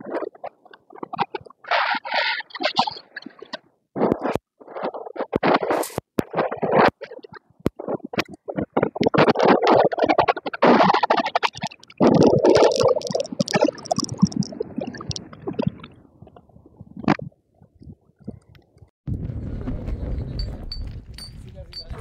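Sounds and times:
wind buffeting microphone: 17.7s - 22.0s.

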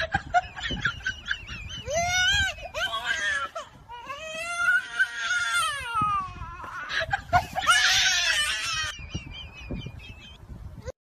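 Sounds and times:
high-pitched crying: 1.8s - 9.0s.

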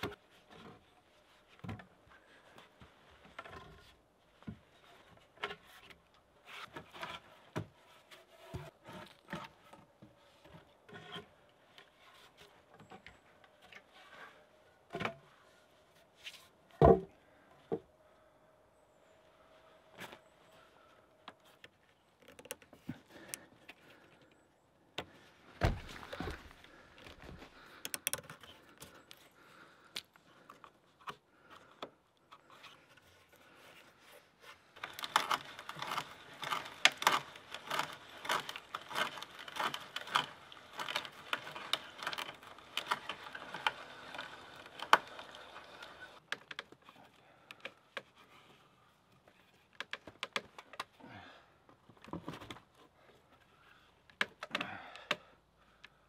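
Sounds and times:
hand tool scraping wood: 0.0s - 15.2s, 32.3s - 50.9s
knocks and rustles: 25.0s - 28.5s.

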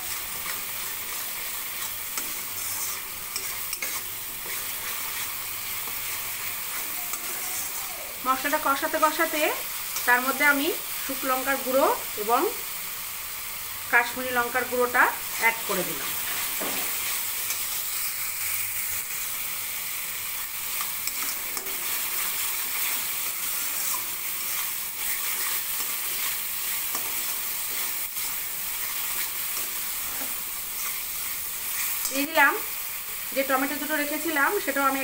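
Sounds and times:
spatula scraping pan: 0.0s - 8.7s, 20.6s - 32.3s
paste sizzling in hot oil: 0.0s - 35.0s.

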